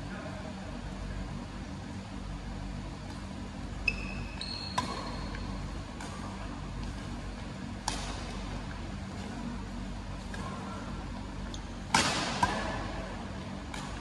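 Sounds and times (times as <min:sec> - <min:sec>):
shoes squeaking on court: 0:03.8 - 0:05.6
racket hitting shuttlecock: 0:04.8 - 0:05.0, 0:07.8 - 0:08.4, 0:11.8 - 0:13.0.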